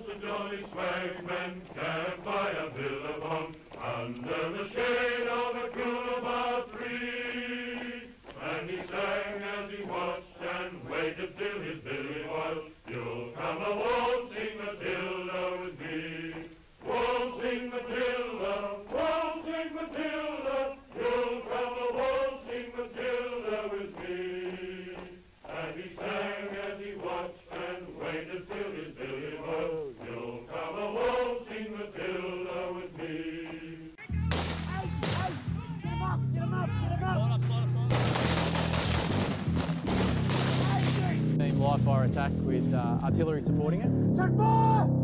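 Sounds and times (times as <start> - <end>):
men chanting in unison: 0.0 - 34.0.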